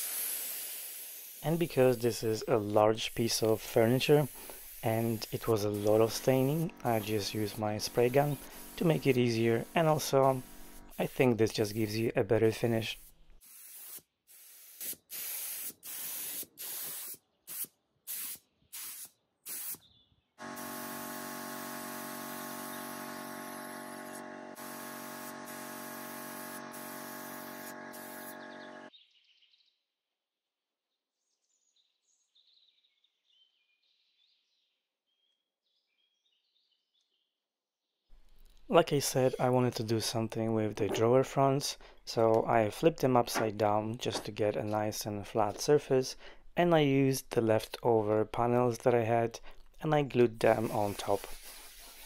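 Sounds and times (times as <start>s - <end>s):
spray gun hissing: 0.0s - 19.8s, 20.4s - 28.9s, 50.5s - 52.0s
motor hum: 20.4s - 28.9s.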